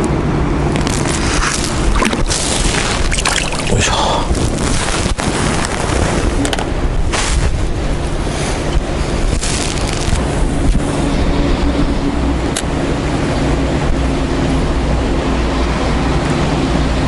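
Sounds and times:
wind buffeting microphone: 0.1 - 17.0
fish splashing into water: 1.0 - 4.2.

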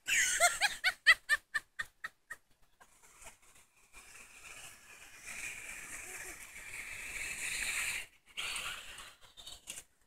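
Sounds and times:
wheels running through water: 2.4 - 10.0.

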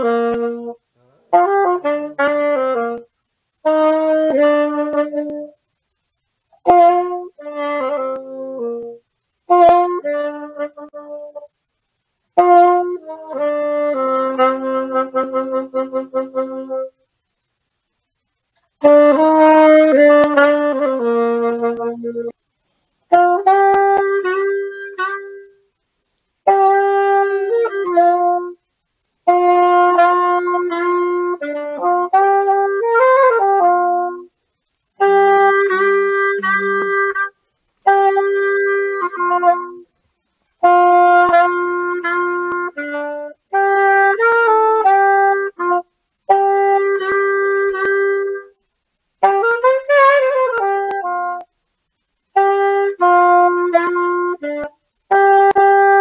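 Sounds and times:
wind instrument chords: 0.0 - 5.6, 18.8 - 22.3, 35.0 - 39.8.

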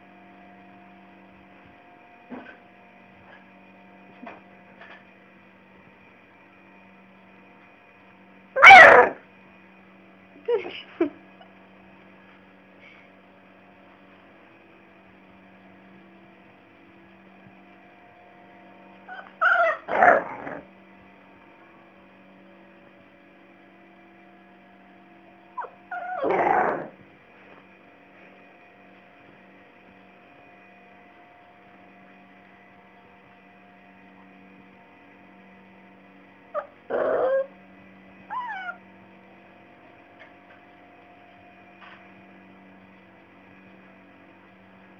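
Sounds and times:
puppy vocalizing: 8.6 - 9.2, 19.1 - 20.6, 25.6 - 27.0, 36.6 - 37.5, 38.3 - 38.8.

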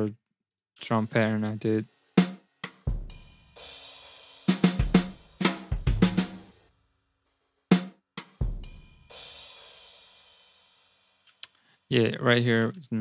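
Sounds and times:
programmed drum pattern: 0.8 - 6.7, 7.3 - 10.2.

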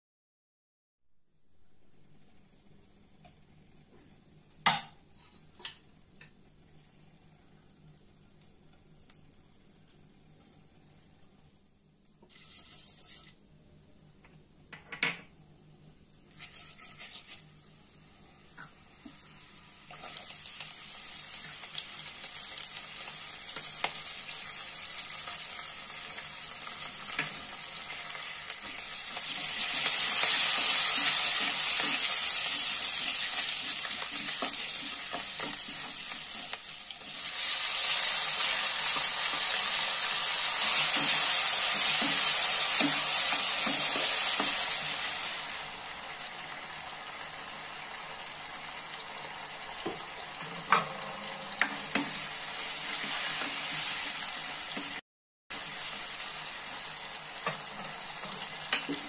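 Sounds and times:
hot oil sizzling: 12.2 - 13.4, 16.2 - 59.0.

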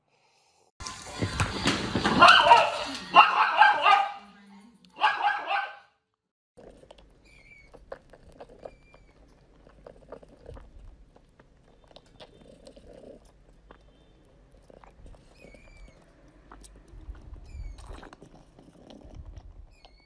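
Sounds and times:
cat sucking from bottle: 6.6 - 20.0.

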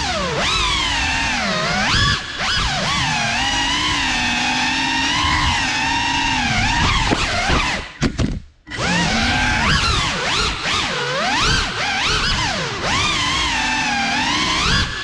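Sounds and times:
drone motors whining: 0.0 - 8.1, 8.7 - 15.0.

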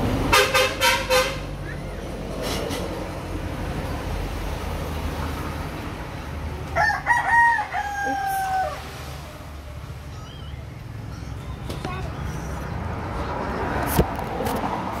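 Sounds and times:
rooster crowing: 6.7 - 9.3.

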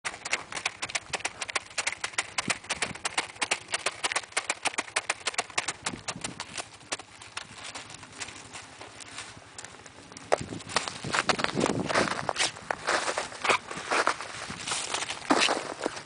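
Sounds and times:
footsteps crunching through snow: 5.9 - 16.0.

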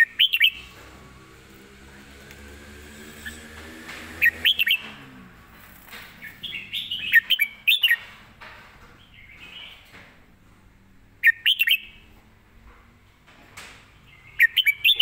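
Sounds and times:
bird singing whistled notes: 0.0 - 0.7, 4.2 - 4.8, 6.2 - 8.0, 11.2 - 12.0, 14.2 - 15.0.

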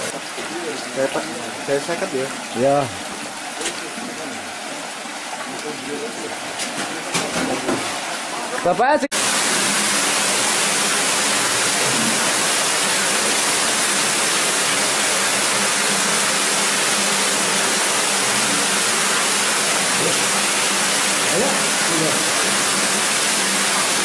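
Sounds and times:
underground river rushing: 0.0 - 24.0.

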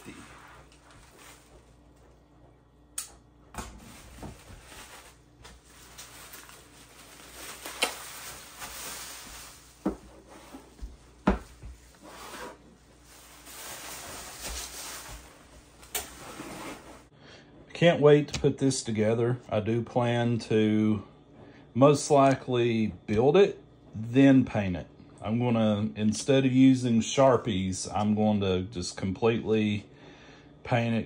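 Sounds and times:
bubble wrap crinkling: 0.0 - 2.2, 3.8 - 17.1.

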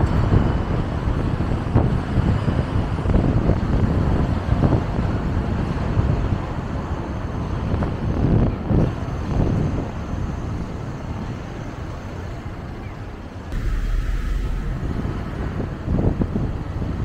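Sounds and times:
car road and traffic noise: 0.0 - 17.0
wind gusts on microphone: 0.0 - 17.0
deep loud rumble: 13.5 - 17.0.

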